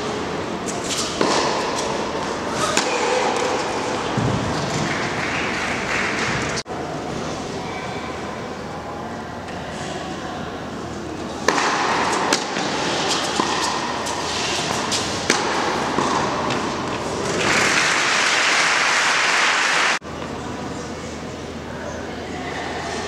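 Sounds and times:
racket hitting tennis ball: 0.7s - 4.9s, 11.4s - 18.1s
applause: 4.8s - 6.6s, 17.5s - 20.0s.

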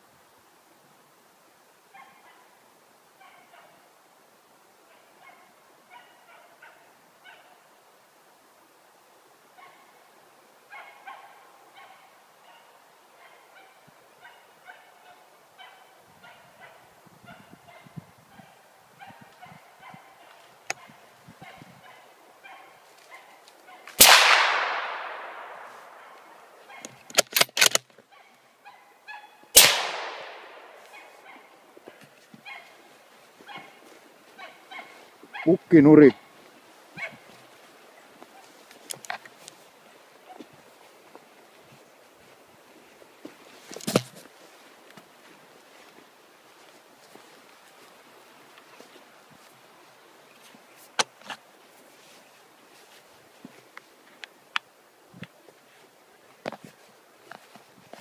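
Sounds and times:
distant hound barking: 1.9s - 2.5s, 3.2s - 3.8s, 4.9s - 7.7s, 9.6s - 10.0s, 10.7s - 27.1s, 28.1s - 38.6s
rifle shot echoing: 24.0s - 26.5s, 29.6s - 31.0s
rifle bolt clicks: 26.8s - 27.9s.

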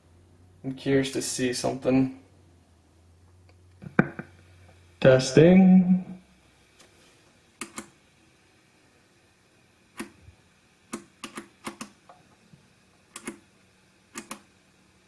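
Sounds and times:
speaker push buttons clicking: 7.6s - 7.9s, 10.9s - 11.9s, 13.1s - 13.4s, 14.2s - 14.5s.

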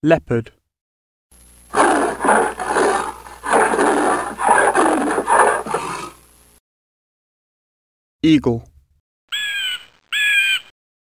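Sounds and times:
leopard rasping growls: 1.7s - 6.2s.

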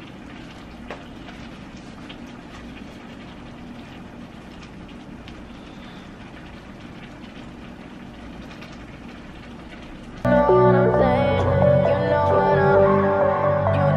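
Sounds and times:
low rumbling hum: 10.2s - 13.9s.

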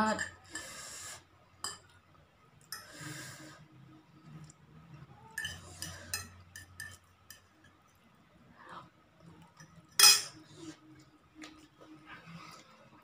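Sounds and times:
fork scraping and clinking on plate: 5.3s - 7.4s, 9.6s - 10.8s.

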